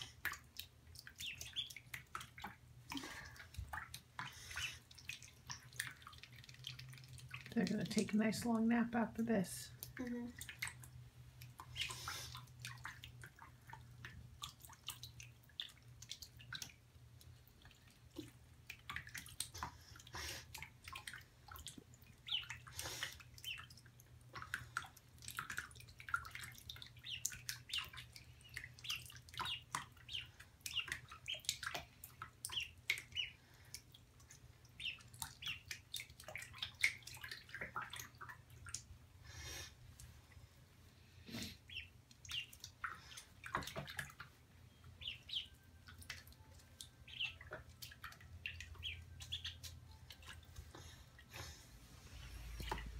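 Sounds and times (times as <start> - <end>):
small water splashes and drips: 0.0 - 40.7, 41.3 - 52.9
ducklings peeping: 1.0 - 2.5, 3.7 - 7.5, 11.6 - 12.4, 22.1 - 23.8, 25.4 - 33.4, 34.7 - 37.9, 41.6 - 43.8, 44.9 - 46.2, 47.0 - 50.4.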